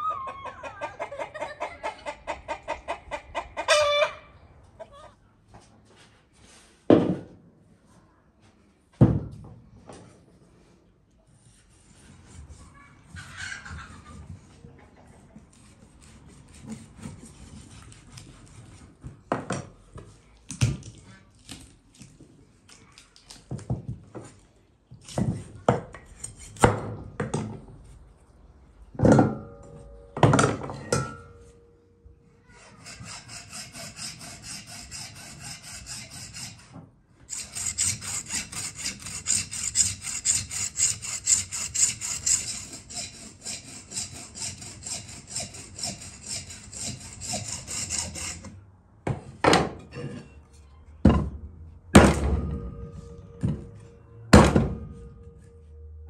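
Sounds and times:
hacksaw sawing: 0:15.5 - 0:19.0, 0:26.1 - 0:26.8, 0:32.6 - 0:48.6.

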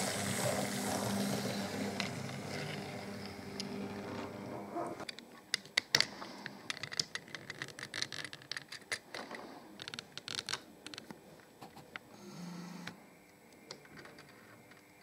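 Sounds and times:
electric motor hum: 0:00.0 - 0:05.1
small plastic clicks and rattles: 0:05.1 - 0:12.0.

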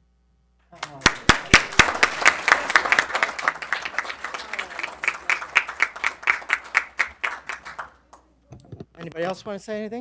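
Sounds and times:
small group applauding: 0:00.7 - 0:08.3.

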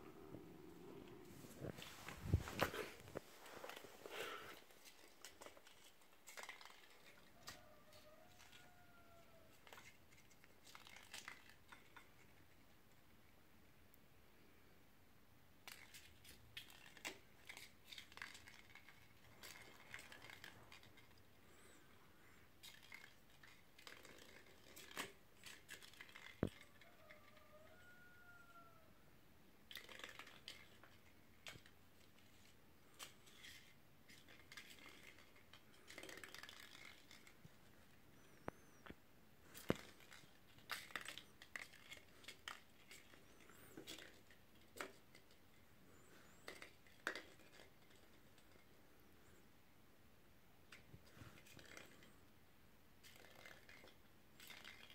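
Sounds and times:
kittens skittering on hard floor: 0:01.6 - 0:12.1, 0:15.7 - 0:21.8
foil ball being batted: 0:29.7 - 0:37.4.

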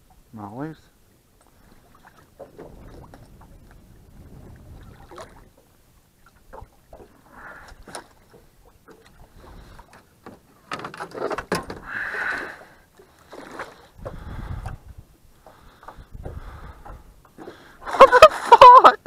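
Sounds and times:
splashing: 0:01.5 - 0:05.6, 0:10.6 - 0:14.3, 0:15.4 - 0:19.0.

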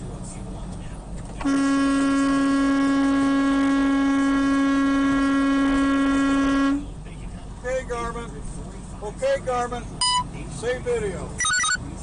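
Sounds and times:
truck horn long blast: 0:01.4 - 0:06.9.

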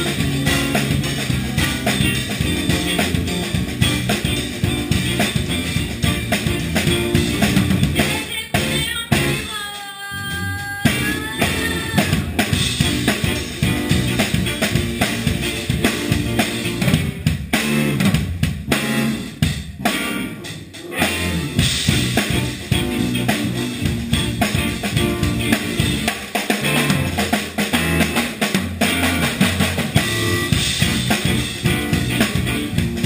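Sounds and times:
snare drum: 0:00.0 - 0:08.1, 0:10.9 - 0:18.8, 0:21.8 - 0:33.0
electric guitar: 0:00.0 - 0:09.5, 0:10.4 - 0:33.0
bass guitar: 0:00.0 - 0:33.0
funk band playing live: 0:00.0 - 0:33.0
cymbals: 0:18.8 - 0:33.0.

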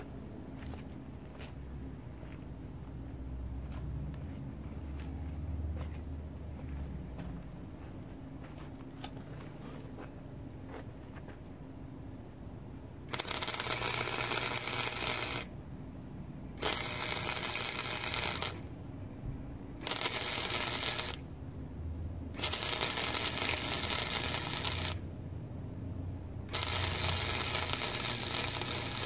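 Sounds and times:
welder arc crackling: 0:13.1 - 0:15.5, 0:16.6 - 0:18.7, 0:19.8 - 0:21.2, 0:22.4 - 0:25.0, 0:26.5 - 0:29.0.

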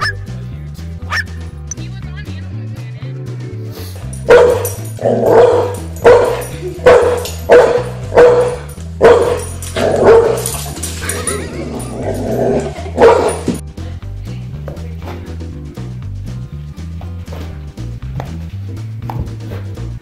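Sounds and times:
background music with steady beat: 0:00.0 - 0:20.0
dog barking: 0:01.1 - 0:01.3, 0:04.2 - 0:10.5, 0:13.0 - 0:13.6.

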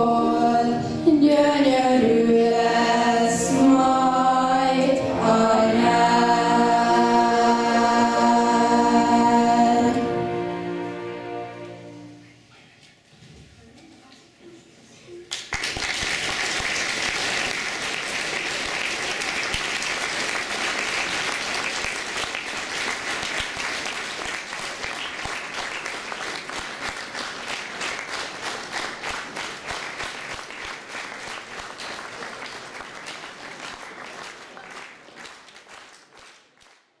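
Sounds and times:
audience applauding: 0:15.3 - 0:37.0.

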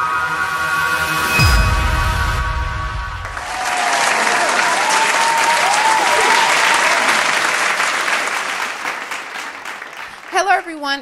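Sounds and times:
crowd cheering: 0:03.2 - 0:10.8
applause: 0:03.2 - 0:11.0.

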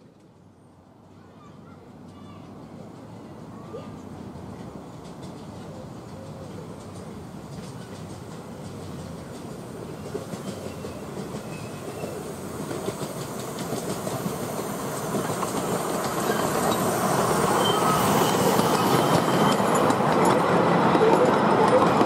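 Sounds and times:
miniature steam train running: 0:01.2 - 0:22.0
high squeals: 0:16.2 - 0:20.0.

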